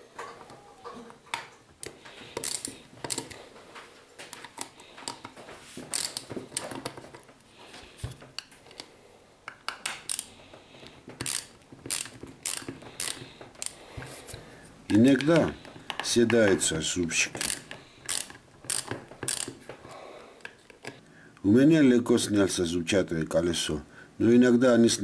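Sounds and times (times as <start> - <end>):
plastic gear clicking and rattling: 5.9 - 7.2, 17.4 - 19.6.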